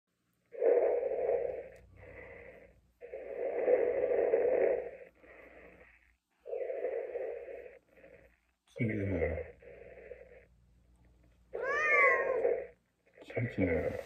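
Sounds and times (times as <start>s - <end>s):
respirator breathing through speaker: 0.5s - 10.6s.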